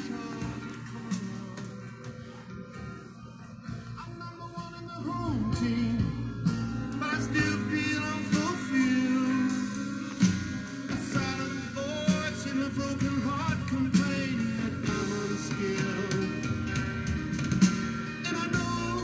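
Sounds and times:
song with singing and beat: 0:00.0 - 0:19.0.

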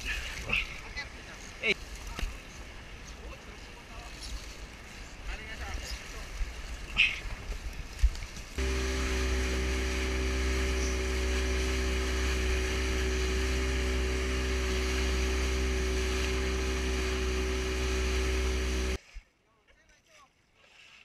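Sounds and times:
water rushing off hull: 0:00.0 - 0:19.0
outboard motor running: 0:08.6 - 0:19.0.

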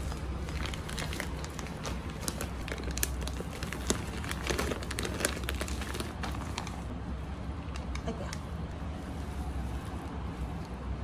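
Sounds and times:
packaging crinkling and rustling: 0:00.0 - 0:06.9.

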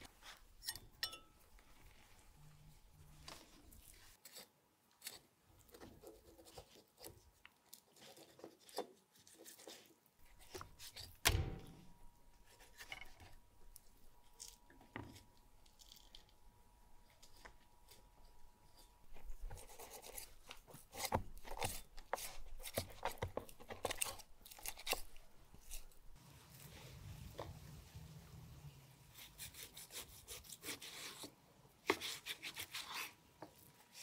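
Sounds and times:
knives cutting meat on wood: 0:29.2 - 0:34.0.

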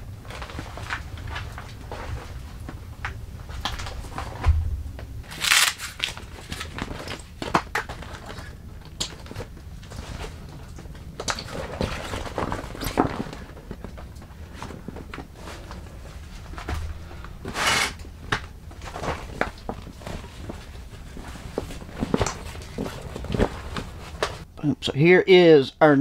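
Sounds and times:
dull thump: 0:04.4 - 0:05.3
fabric crinkling and rustling: 0:05.3 - 0:24.5.

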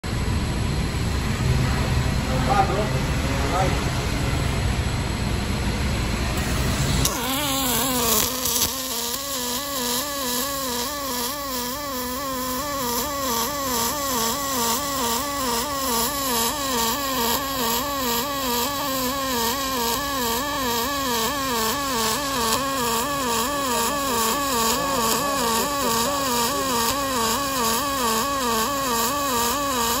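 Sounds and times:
welding arc buzzing: 0:06.3 - 0:30.0.

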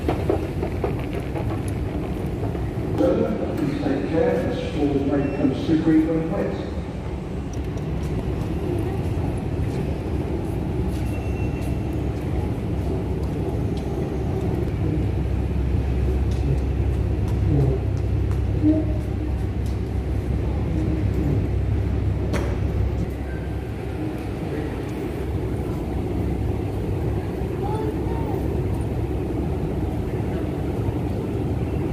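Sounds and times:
station hall rumble: 0:00.0 - 0:31.9.

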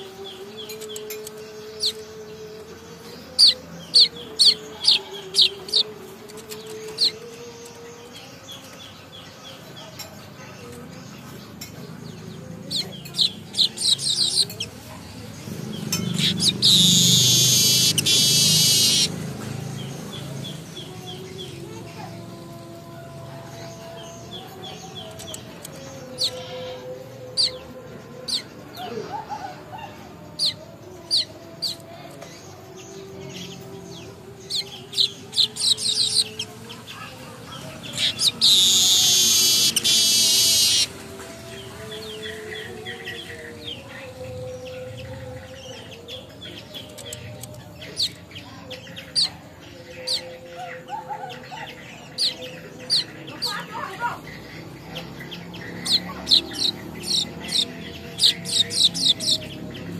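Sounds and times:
buzzy bird trill: 0:00.0 - 0:09.0, 0:12.5 - 0:22.2, 0:33.3 - 0:41.1, 0:45.8 - 0:59.9
bird chirps: 0:00.0 - 0:22.1, 0:23.8 - 0:59.9
bird harsh buzzing wheeze: 0:16.2 - 0:19.1, 0:37.9 - 0:40.9.

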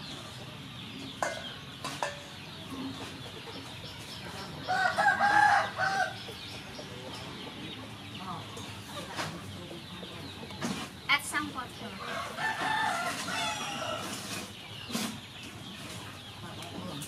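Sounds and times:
rooster crowing: 0:04.7 - 0:06.2, 0:12.1 - 0:14.2.

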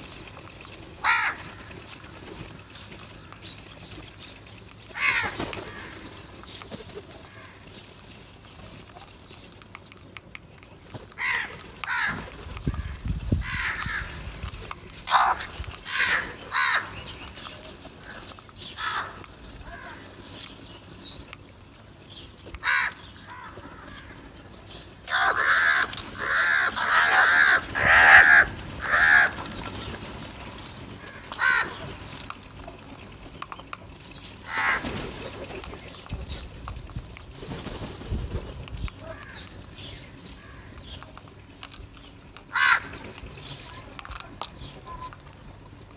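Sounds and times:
crows cawing: 0:01.0 - 0:01.8, 0:04.9 - 0:06.1, 0:07.2 - 0:07.6, 0:11.1 - 0:14.3, 0:15.1 - 0:17.1, 0:18.0 - 0:20.2, 0:22.6 - 0:24.2, 0:25.0 - 0:29.7, 0:31.0 - 0:32.0, 0:34.4 - 0:35.0, 0:39.0 - 0:39.6, 0:40.4 - 0:40.8, 0:42.5 - 0:43.0.

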